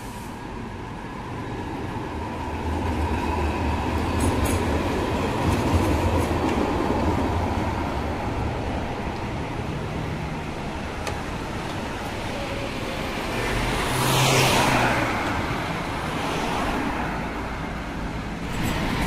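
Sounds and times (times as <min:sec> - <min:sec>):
bus passing close by: 0:00.0 - 0:19.0
street traffic: 0:00.0 - 0:19.0
car passing: 0:13.1 - 0:19.0.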